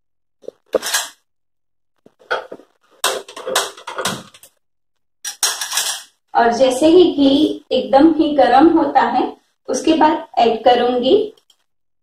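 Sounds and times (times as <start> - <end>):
saucepan clattering on stove: 2.3 - 4.4.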